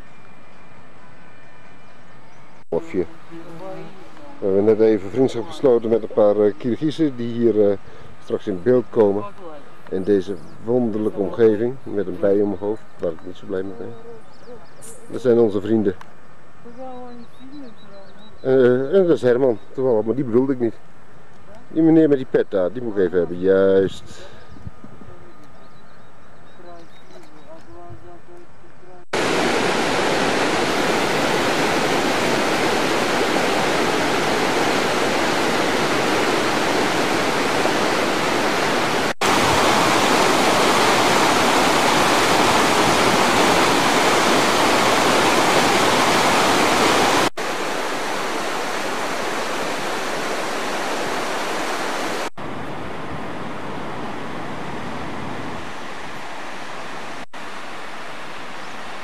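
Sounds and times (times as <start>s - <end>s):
stream rushing over rocks: 29.2s - 53.0s, 53.7s - 59.0s.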